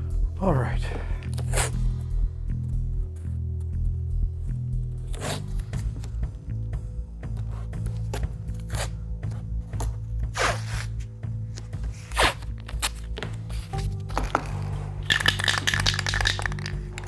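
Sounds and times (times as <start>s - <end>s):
background music: 0.0s - 17.0s
masking tape ripping: 12.1s - 13.2s.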